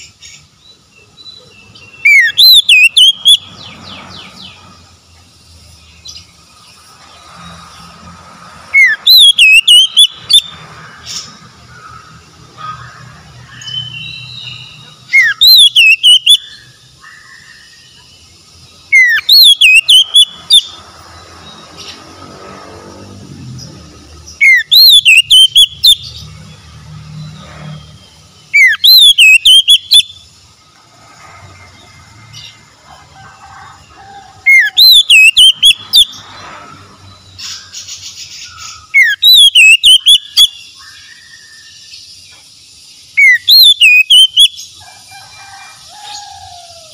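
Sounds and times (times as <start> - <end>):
bird singing whistled phrases: 1.1 - 3.5, 8.8 - 10.6, 13.5 - 16.6, 18.9 - 20.8, 24.4 - 26.2, 28.5 - 30.2, 34.5 - 36.1, 38.4 - 41.3, 43.2 - 44.6.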